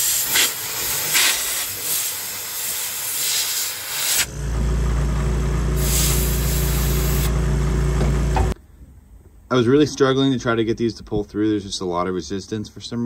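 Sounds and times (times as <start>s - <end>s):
compressed air blow gun hissing: 0.0s - 4.3s, 5.8s - 7.3s.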